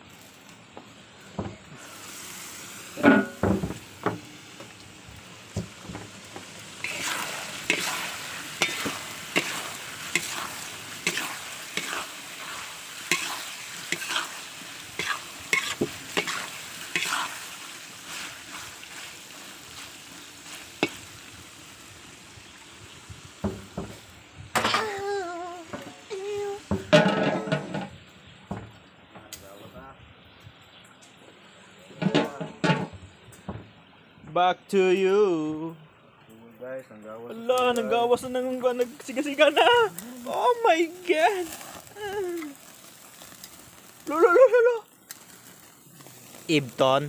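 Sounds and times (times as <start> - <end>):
meat sizzling: 0.0 - 28.7, 37.3 - 47.0
metal spatula scraping a wok: 3.0 - 3.5, 6.8 - 19.1
metal clanks on pan: 3.0 - 4.2, 26.8 - 27.9, 32.0 - 33.0.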